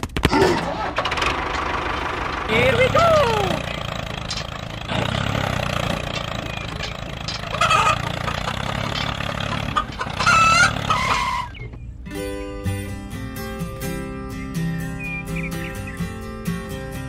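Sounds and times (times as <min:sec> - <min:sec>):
tractor engine rumble: 0:00.0 - 0:12.2
chicken clucking: 0:00.7 - 0:11.8.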